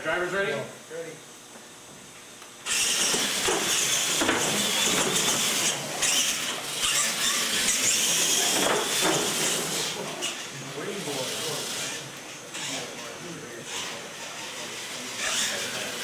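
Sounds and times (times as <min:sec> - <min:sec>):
high motor whine: 0:02.6 - 0:16.0.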